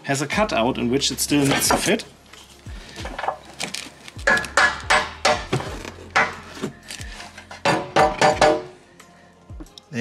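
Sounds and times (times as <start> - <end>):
hammer striking steel: 4.3 - 5.6, 7.6 - 8.8.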